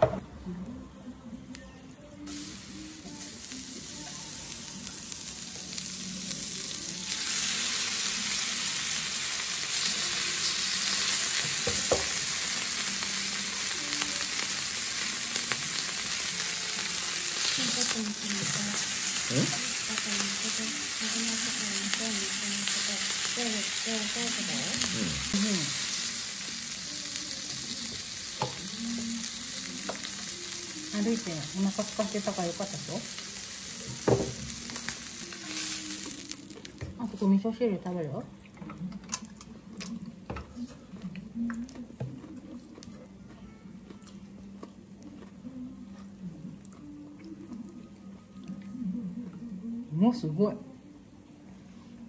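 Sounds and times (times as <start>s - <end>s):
meat sizzling on a griddle: 2.3s - 36.8s.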